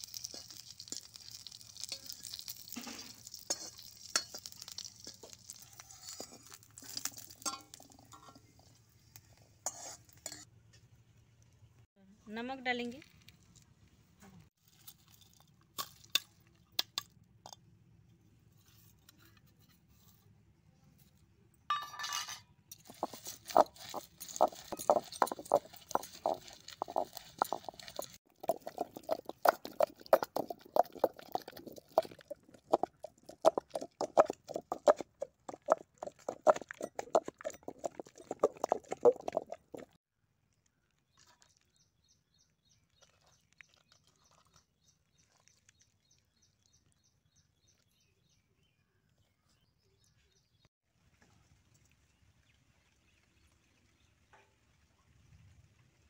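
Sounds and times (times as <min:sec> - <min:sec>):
steel bowl clinking on stone: 0:00.0 - 0:08.5, 0:21.7 - 0:40.0
pounding in stone mortar: 0:22.8 - 0:40.0.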